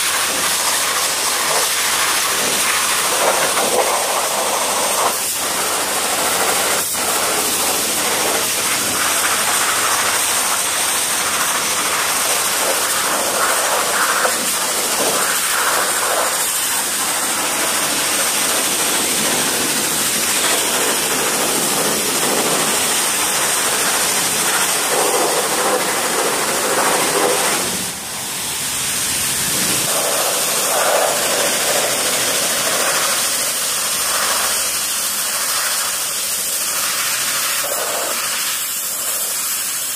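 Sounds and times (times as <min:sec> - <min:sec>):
pressure washer jet spraying: 0:00.0 - 0:39.9.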